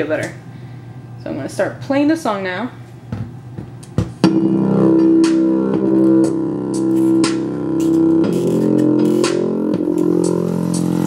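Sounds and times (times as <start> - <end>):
song on small speaker: 4.2 - 11.0.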